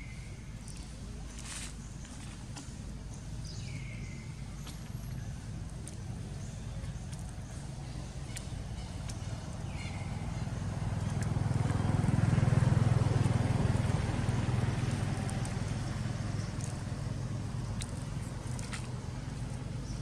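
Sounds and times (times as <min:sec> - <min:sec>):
passing vehicle engine hum: 0:04.9 - 0:20.0.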